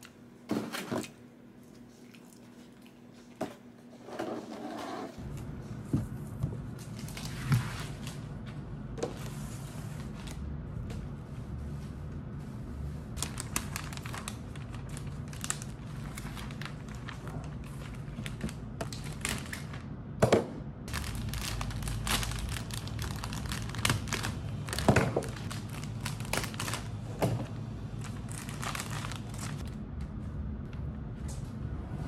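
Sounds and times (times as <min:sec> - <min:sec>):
cellophane crinkling: 0:13.2 - 0:19.8, 0:20.9 - 0:27.1, 0:27.9 - 0:29.8.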